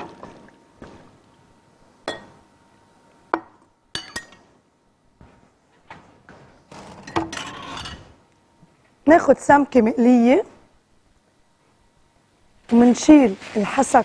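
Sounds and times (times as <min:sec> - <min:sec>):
glassware and utensils clinking: 0:02.1 - 0:02.4, 0:03.9 - 0:04.5, 0:07.1 - 0:08.1.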